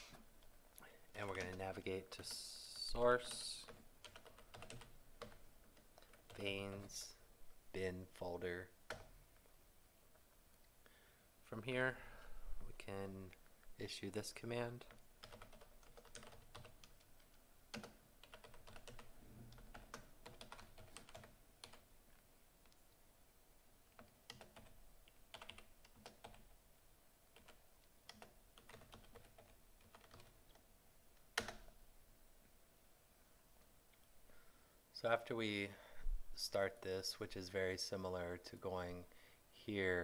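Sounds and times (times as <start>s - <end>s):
typing on computer keyboard: 1.2s - 2.4s, 3.2s - 7.1s, 8.9s - 9.1s, 14.8s - 21.8s, 23.9s - 26.5s, 27.4s - 30.6s, 31.4s - 31.8s.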